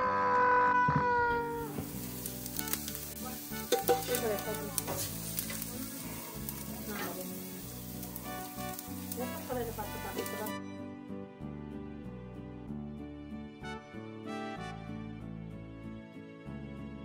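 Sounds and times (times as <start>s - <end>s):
faint background music: 0.1s - 17.0s
meat sizzling on a grill: 1.4s - 10.6s.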